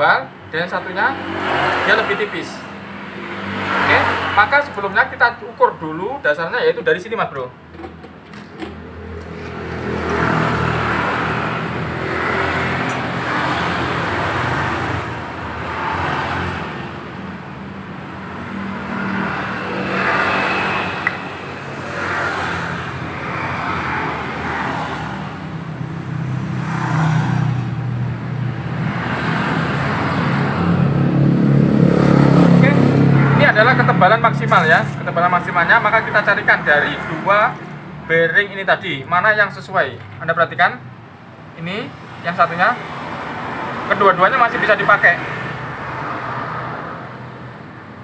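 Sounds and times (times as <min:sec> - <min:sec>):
vehicle engine humming: 0:07.6 - 0:36.8.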